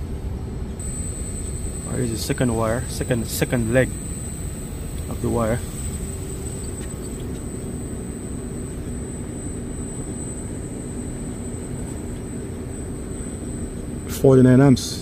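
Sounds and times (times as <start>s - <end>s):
air conditioner unit droning: 0.0s - 15.0s
thin high whine: 0.0s - 15.0s.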